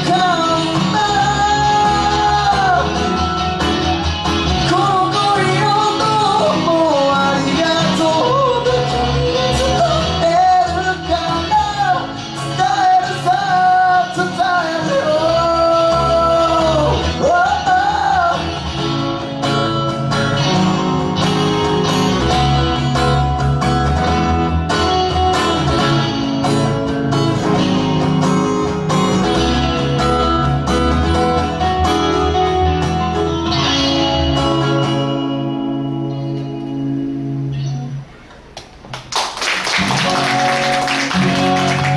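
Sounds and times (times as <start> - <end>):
man singing: 0.0 - 3.4, 4.6 - 19.0
strummed acoustic guitar: 0.0 - 38.3, 39.8 - 41.9
bass guitar: 0.0 - 41.9
electric guitar: 0.0 - 41.9.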